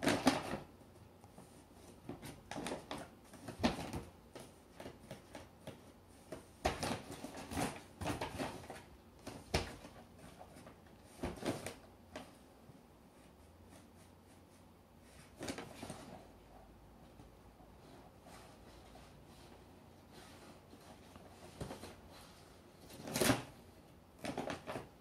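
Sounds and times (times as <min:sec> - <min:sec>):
paper bag rustling and crinkling: 0:01.8 - 0:12.4, 0:24.2 - 0:25.0.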